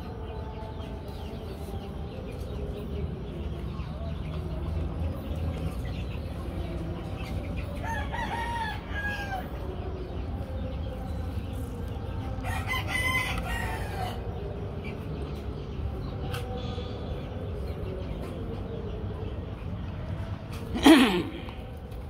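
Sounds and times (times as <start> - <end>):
rooster crowing: 7.8 - 9.5, 12.4 - 14.2.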